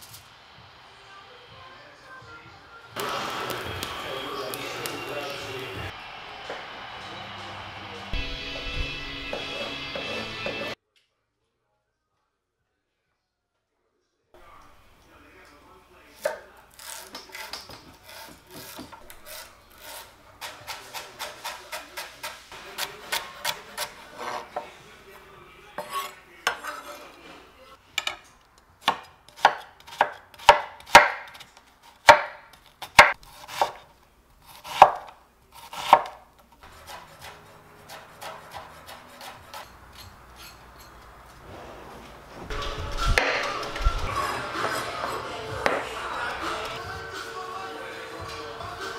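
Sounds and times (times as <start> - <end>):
knife chopping on wooden board: 8.6 - 10.7, 16.2 - 24.7, 28.8 - 33.9, 34.5 - 39.7
vegetable peeler scraping carrot: 16.2 - 24.7, 28.8 - 41.0.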